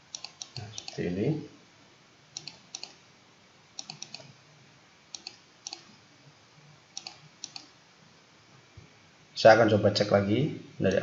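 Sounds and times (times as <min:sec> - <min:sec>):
computer mouse clicking: 0:00.1 - 0:01.0, 0:02.4 - 0:03.0, 0:03.8 - 0:04.3, 0:05.1 - 0:05.9, 0:07.0 - 0:07.7.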